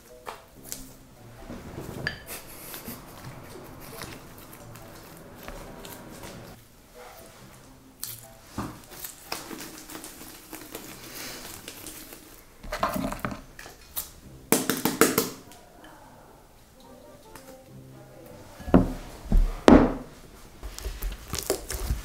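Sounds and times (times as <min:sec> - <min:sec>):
slime squishing: 0:07.6 - 0:12.7, 0:20.6 - 0:22.0.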